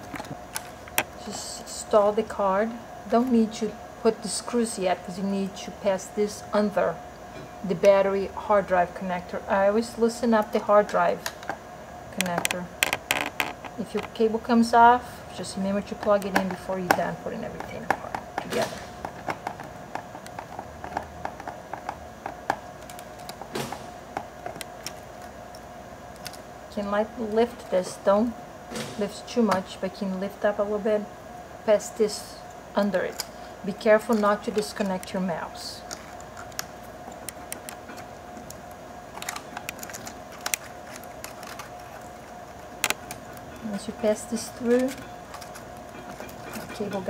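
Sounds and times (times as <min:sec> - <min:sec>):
faint steady hum: 0:00.0 - 0:47.0
light clicks and rustles of parts: 0:35.8 - 0:43.6.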